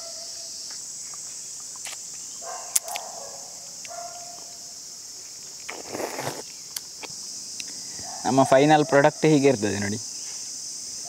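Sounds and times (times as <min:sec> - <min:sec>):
high-pitched insect chorus: 0:00.0 - 0:11.0
wet clicks and slurps of sucking fruit: 0:05.6 - 0:06.9.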